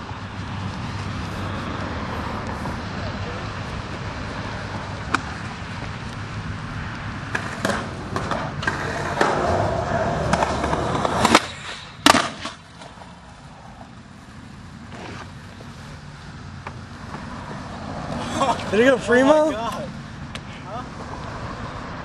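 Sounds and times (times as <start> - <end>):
skateboard wheels rolling on concrete: 0.0 - 22.0
skateboard clicks: 6.9 - 13.9
skateboard cracking: 7.2 - 14.0, 14.8 - 16.0
skateboard and skater hitting ground: 7.3 - 13.9, 14.8 - 15.7.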